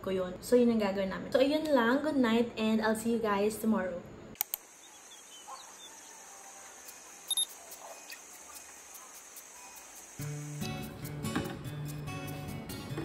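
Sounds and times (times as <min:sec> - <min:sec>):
steady high hiss: 0:04.4 - 0:11.2
bird chirps: 0:04.7 - 0:06.2
soft guitar music: 0:10.2 - 0:13.0.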